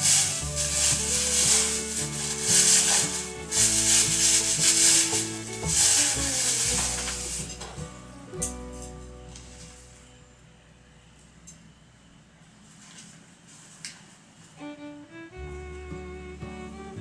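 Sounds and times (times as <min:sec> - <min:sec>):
hissing percussion: 0:00.0 - 0:10.0
bass line: 0:00.0 - 0:11.1, 0:15.3 - 0:17.0
sustained melody notes: 0:00.0 - 0:11.2, 0:14.6 - 0:17.0.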